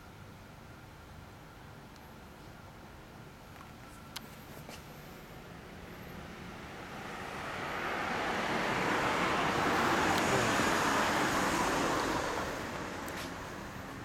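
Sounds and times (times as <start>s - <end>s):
road vehicle passing by: 4.7s - 14.0s.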